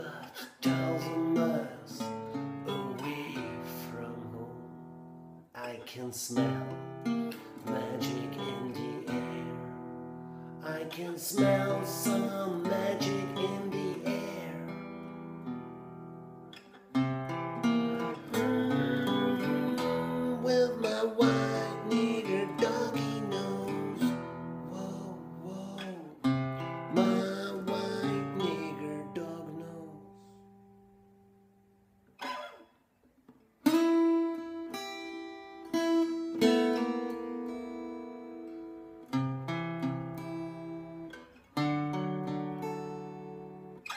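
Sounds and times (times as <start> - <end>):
acoustic guitar chords ringing: 0.0 - 32.8, 33.6 - 43.9
picked guitar notes: 6.4 - 43.9.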